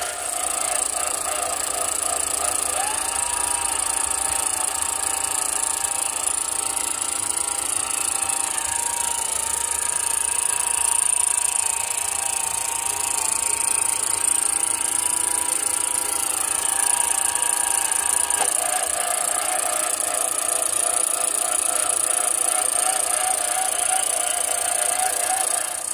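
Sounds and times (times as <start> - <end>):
electric motor whine: 0.0 - 25.9.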